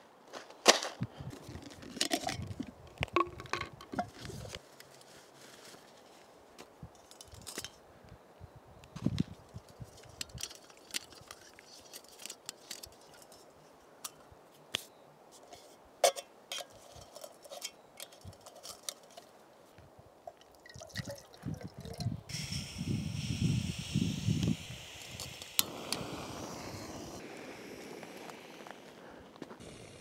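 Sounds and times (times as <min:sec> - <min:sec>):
metal and plastic parts clinking: 0:00.8 - 0:02.5, 0:10.0 - 0:14.2, 0:15.6 - 0:19.3.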